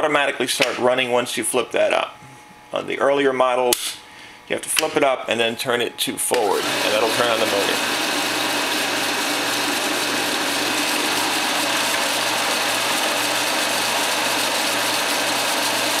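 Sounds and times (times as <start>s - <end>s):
film projector whirring: 6.0s - 16.0s.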